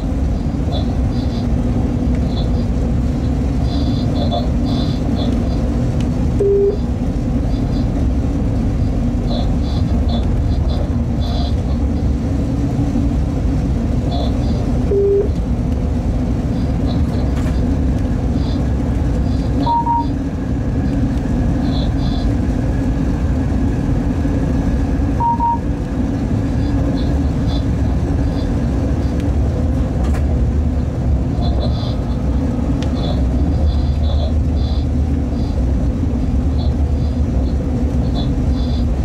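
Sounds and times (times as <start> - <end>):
train cab rumble: 0.0 - 39.0
short electronic beeps: 6.4 - 6.8, 14.9 - 15.3, 19.6 - 20.2, 25.2 - 25.7.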